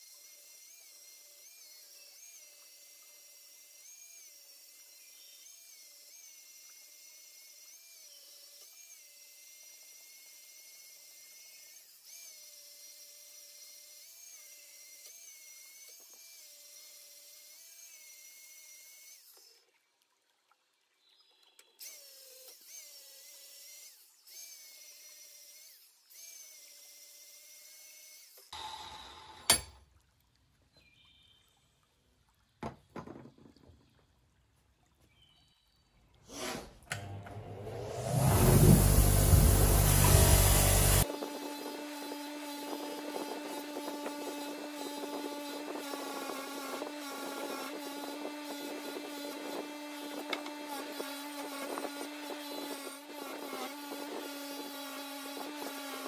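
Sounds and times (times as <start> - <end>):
bench grinder humming: 21.9 - 29.8, 36.3 - 56.0
metal scratching on grinding wheel: 37.0 - 56.0.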